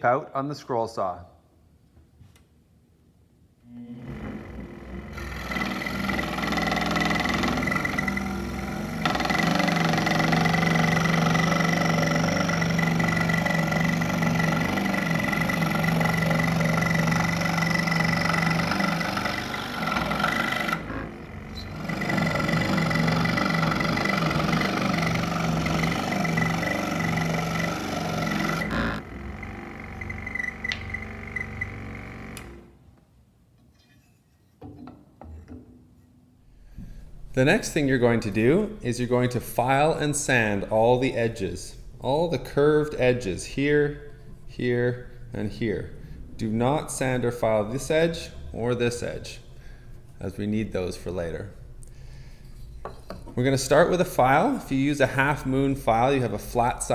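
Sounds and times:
scroll saw cutting wood: 4.0s - 32.7s.

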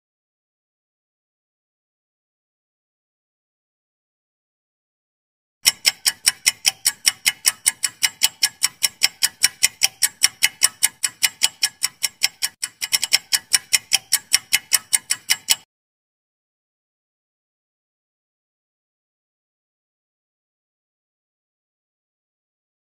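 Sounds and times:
rapid clock ticks: 5.6s - 15.7s.

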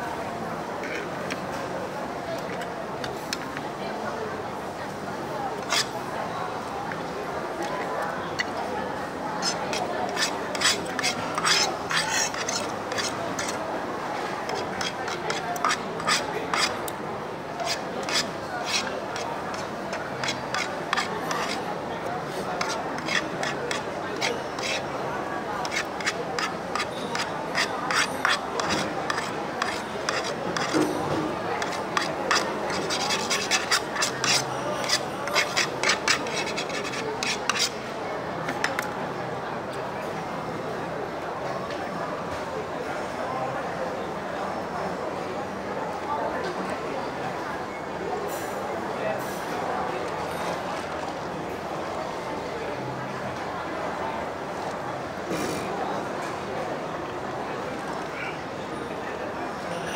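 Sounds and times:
background murmur: 0.0s - 59.9s
cutlery scraping against a dish: 5.6s - 6.0s, 9.4s - 13.6s, 14.2s - 16.8s, 17.6s - 25.0s, 25.6s - 37.8s, 48.3s - 48.6s.

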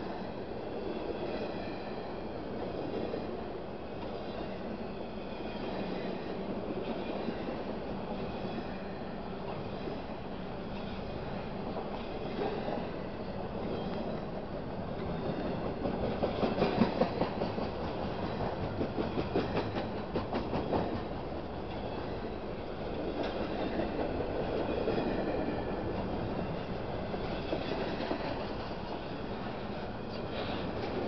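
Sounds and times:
train wheels rumbling on rails: 0.0s - 31.0s
wheels clicking over rail joints: 15.0s - 31.0s.

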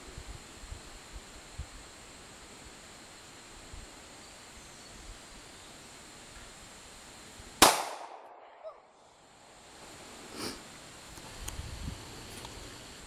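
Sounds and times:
pistol shot: 7.6s - 8.7s.

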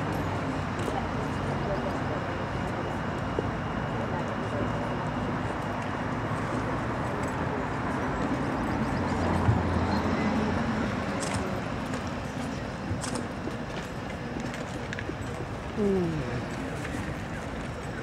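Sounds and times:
distant city traffic: 0.0s - 18.0s.

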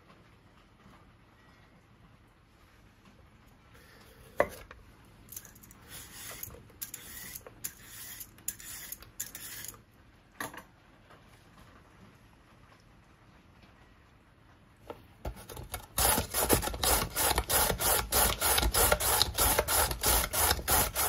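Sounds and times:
peeler scraping carrot: 5.7s - 9.8s, 15.3s - 21.0s.

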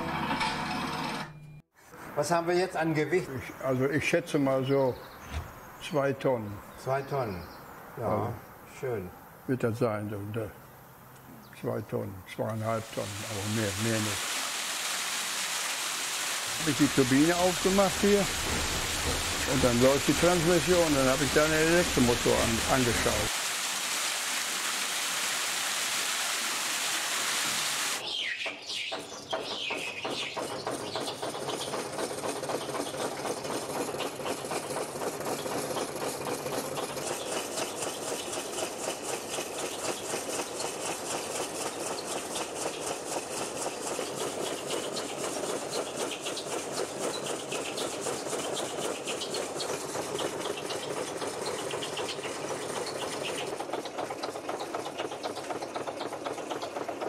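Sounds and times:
water rushing through turbine: 12.6s - 28.0s
line shaft and belts clattering: 16.4s - 23.3s, 28.6s - 57.0s.

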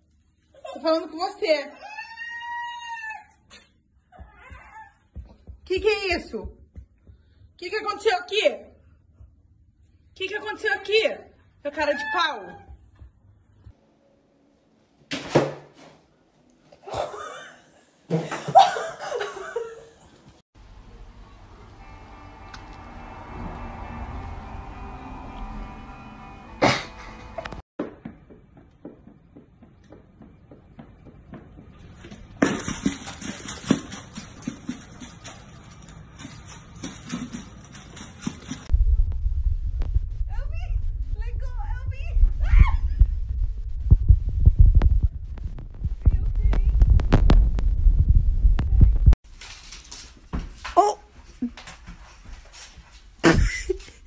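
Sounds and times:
person laughing: 16.8s - 20.0s, 26.6s - 27.4s, 53.2s - 54.0s.

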